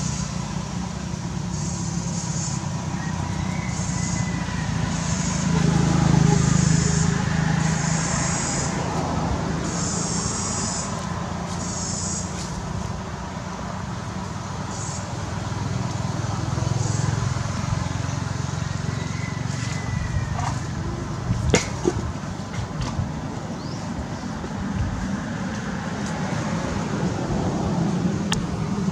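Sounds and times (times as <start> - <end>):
low traffic rumble: 0.0 - 28.9
short high buzzing pulses: 4.9 - 9.0, 9.6 - 12.4.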